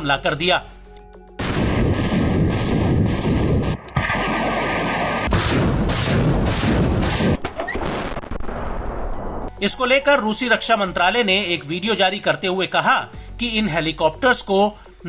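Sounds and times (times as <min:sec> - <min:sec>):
rockets launching in salvo: 0:01.4 - 0:09.0.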